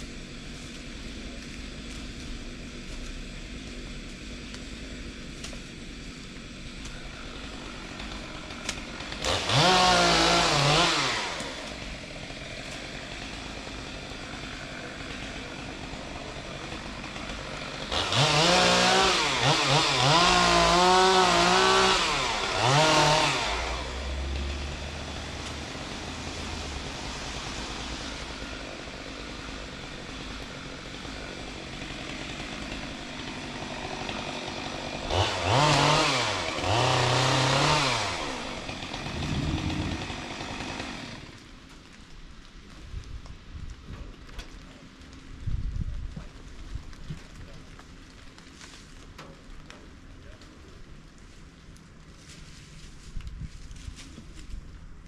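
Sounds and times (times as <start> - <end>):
chainsaw revving: 7.0 - 41.4.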